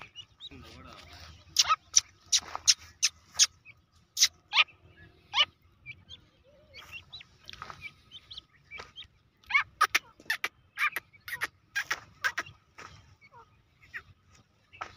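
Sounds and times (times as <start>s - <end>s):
soft bird chirps: 0.0s - 14.9s
young bird calling sharply: 1.4s - 4.7s, 9.5s - 14.1s.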